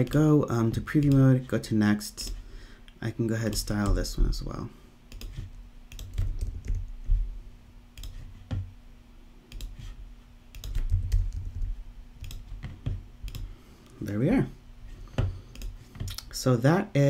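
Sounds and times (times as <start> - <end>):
typing on computer keyboard: 5.1 - 6.8, 10.5 - 13.4.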